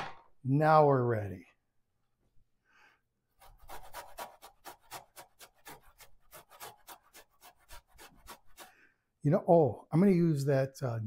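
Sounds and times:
ginger grated on metal grater: 3.4s - 8.8s.

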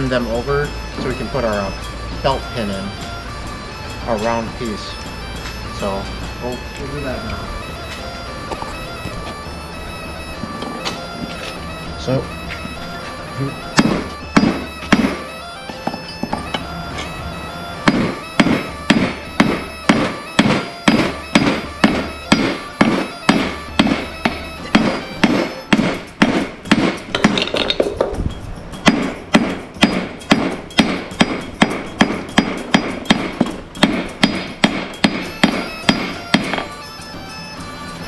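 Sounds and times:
hammer striking steel on anvil: 13.8s - 15.2s, 17.8s - 28.2s, 28.8s - 36.7s.

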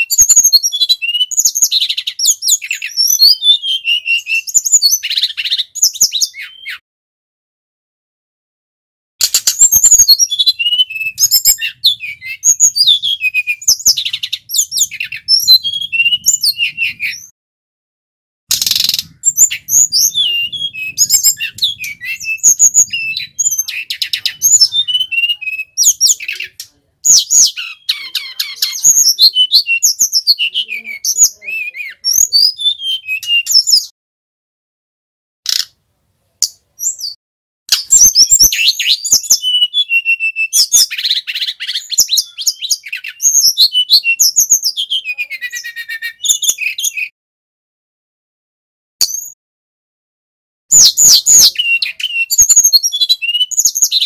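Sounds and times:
bird singing: 0.0s - 6.8s, 9.2s - 17.3s, 18.5s - 33.9s, 36.4s - 37.2s, 37.8s - 47.1s, 50.7s - 54.0s.

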